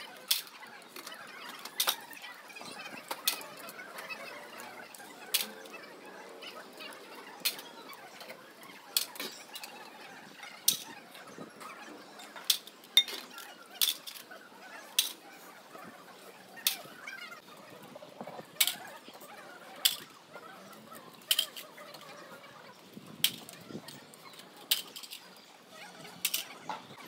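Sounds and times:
faint background murmur: 0:00.0 - 0:27.0
metal ladles clinking on crockery: 0:12.6 - 0:14.2.

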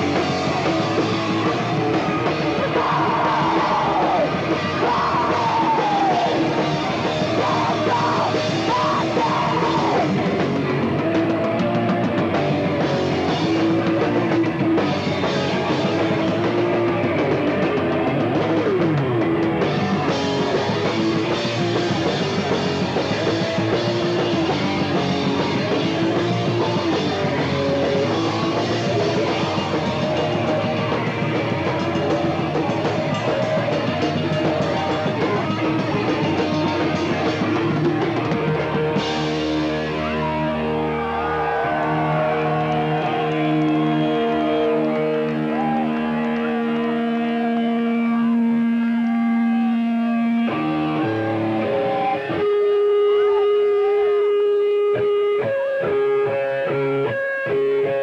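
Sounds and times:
punk rock band playing live: 0:00.0 - 0:58.0.

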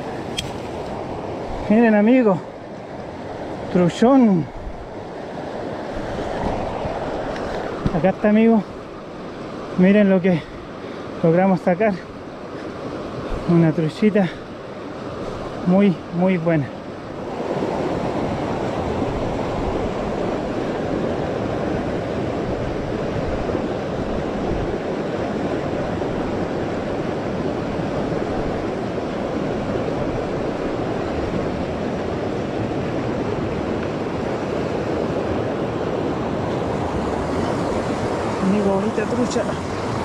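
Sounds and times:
river rapids rushing over rocks: 0:36.1 - 0:40.0.

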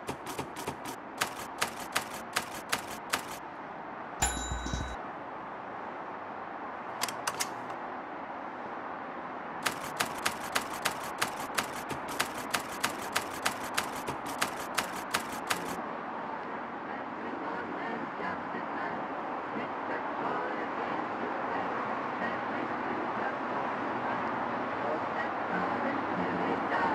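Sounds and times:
typewriter keystrokes clacking: 0:00.0 - 0:03.4, 0:09.6 - 0:15.8
typewriter bell ding with thud: 0:04.2 - 0:05.0.

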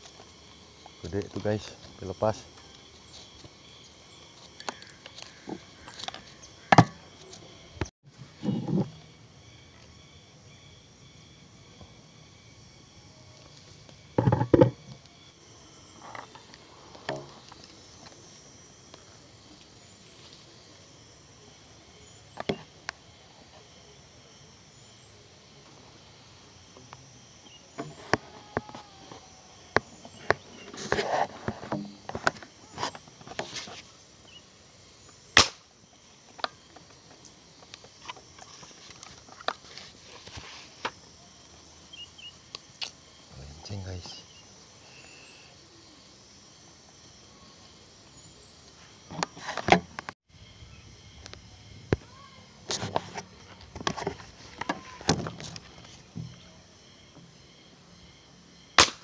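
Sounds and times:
sharp snap: 0:35.4 - 0:35.7, 0:58.8 - 0:59.0.

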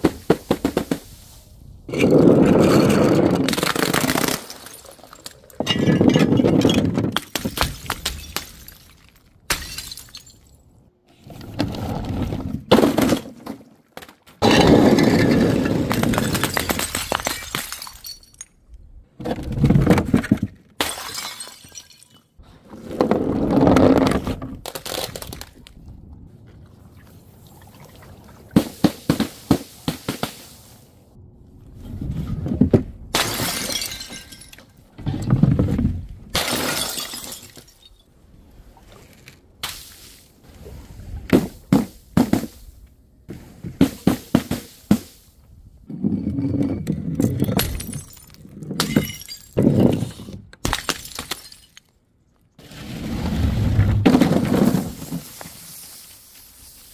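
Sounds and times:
bottles rolling down wooden chute: 0:01.9 - 0:07.4, 0:14.4 - 0:18.4, 0:22.7 - 0:24.6, 0:45.9 - 0:51.8, 0:52.6 - 0:55.6.

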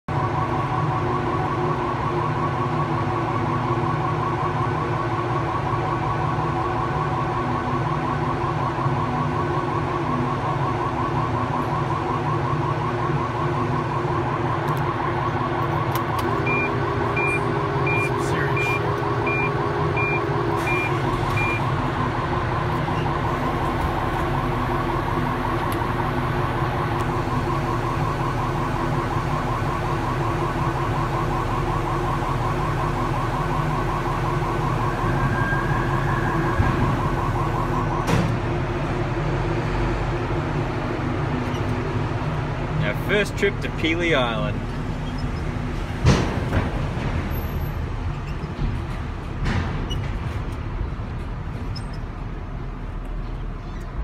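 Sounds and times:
vehicle engine drone: 0:00.1 - 0:54.0
short high beeps: 0:16.5 - 0:21.6.

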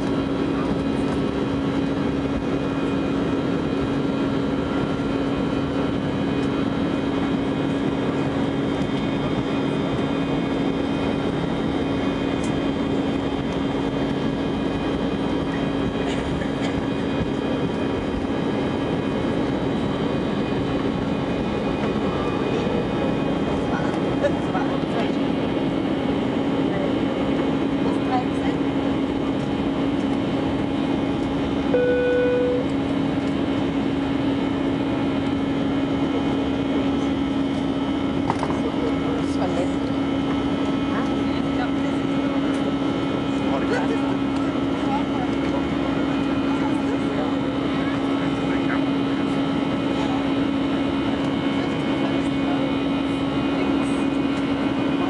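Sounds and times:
airliner engines roaring: 0:00.0 - 0:55.0
constant hum: 0:00.0 - 0:55.0
short beep: 0:31.7 - 0:32.7.

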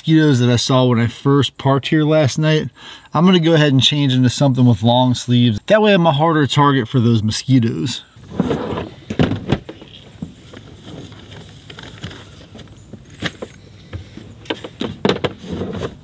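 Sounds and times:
knocks of items being moved: 0:08.2 - 0:16.0
rustling: 0:08.2 - 0:16.0.

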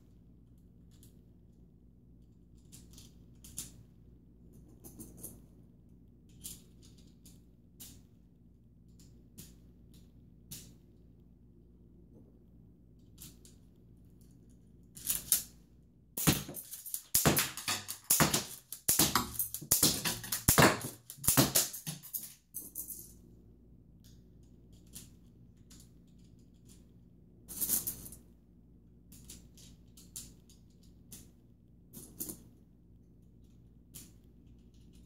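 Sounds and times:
plastic parts clattering and clicking: 0:16.2 - 0:22.4.

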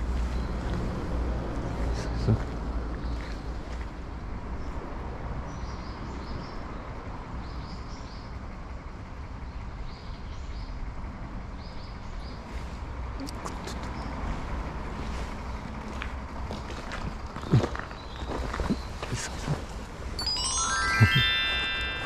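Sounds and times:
small birds chirping: 0:11.5 - 0:22.0.

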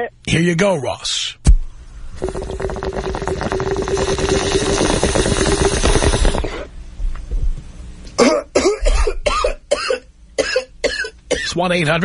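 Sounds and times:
water pipe rattling: 0:02.1 - 0:06.7
person coughing harshly: 0:08.2 - 0:11.6.

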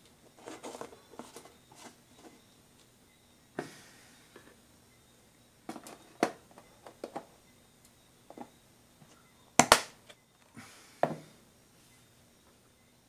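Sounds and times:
plastic lids clicking: 0:05.7 - 0:07.3.

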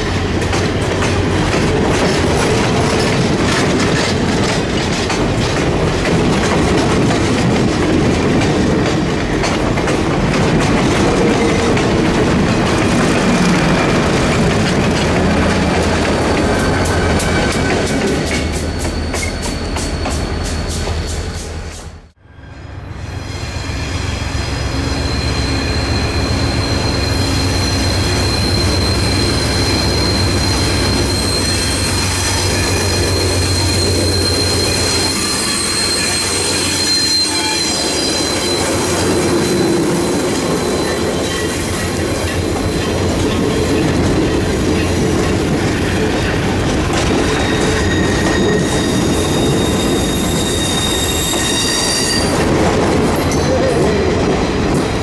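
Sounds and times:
diesel locomotive engine rumble: 0:00.0 - 0:51.5
high wheel squeal: 0:15.2 - 0:52.5.

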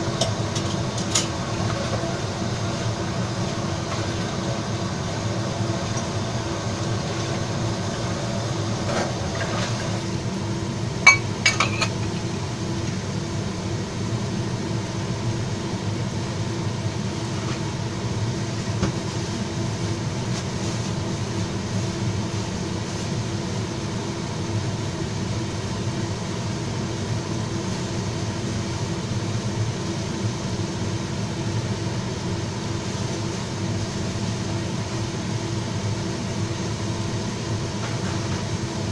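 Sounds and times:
steady hum: 0:00.0 - 0:38.9
stir-fry sizzling in a wok: 0:00.0 - 0:38.9.

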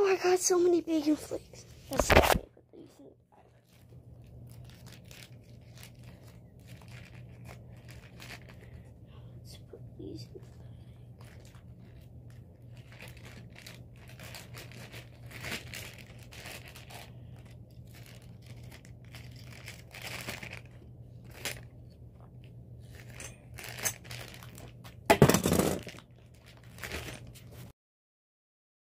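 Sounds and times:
steady low hum: 0:00.0 - 0:27.7
bag crinkling and rustling: 0:03.4 - 0:08.9, 0:10.5 - 0:27.7.

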